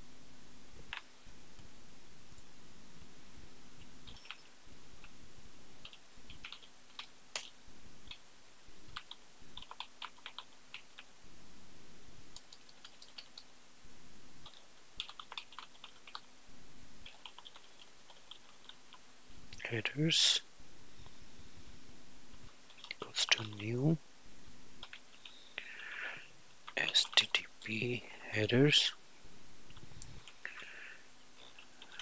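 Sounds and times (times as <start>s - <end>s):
low background hum: 0.0s - 32.0s
computer keyboard typing: 4.0s - 5.1s, 5.8s - 8.2s, 8.9s - 11.1s, 12.3s - 13.5s, 14.4s - 16.3s, 17.0s - 19.0s, 22.7s - 23.7s, 24.8s - 25.4s, 26.7s - 27.3s, 31.4s - 32.0s.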